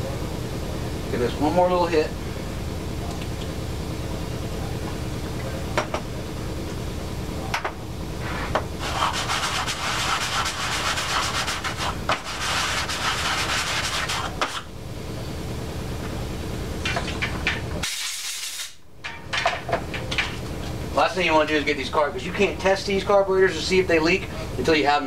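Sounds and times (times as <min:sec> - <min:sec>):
metal part scraping on sandpaper: 0:08.8 - 0:14.6.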